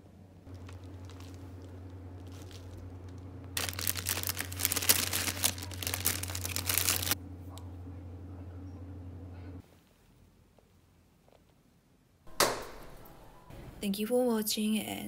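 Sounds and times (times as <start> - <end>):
steady low hum: 0.0 - 9.7
packaging crinkling and rustling: 0.5 - 7.2.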